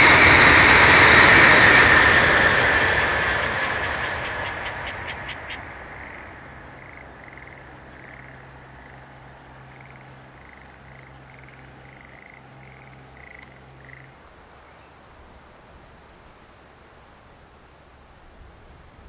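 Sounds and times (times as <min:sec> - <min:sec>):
passing train rumble: 0:00.0 - 0:16.8
steady low hum: 0:00.0 - 0:19.0
frogs croaking: 0:00.2 - 0:15.2.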